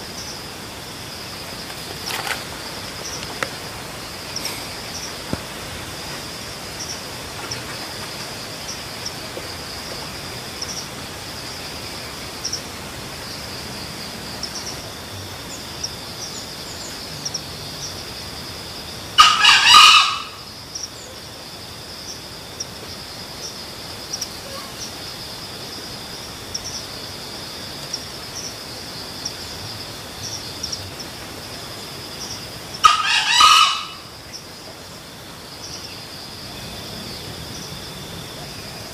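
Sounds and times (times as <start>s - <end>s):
insects droning: 0.0s - 38.9s
rooster crowing: 19.2s - 20.4s, 32.8s - 34.1s.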